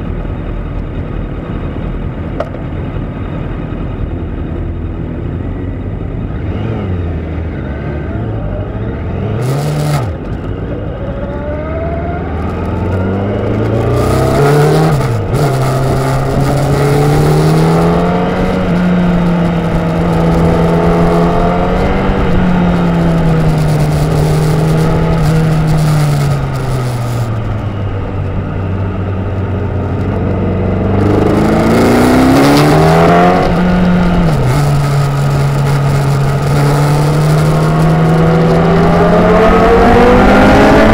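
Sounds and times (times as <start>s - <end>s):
motorcycle engine accelerating: 0.0s - 40.9s
wind rushing over microphone: 8.6s - 40.9s.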